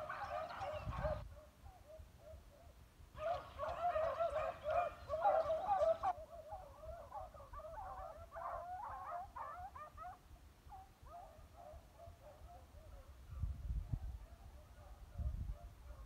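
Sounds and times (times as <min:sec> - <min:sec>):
dogs baying: 0:00.0 - 0:02.4, 0:03.2 - 0:13.1.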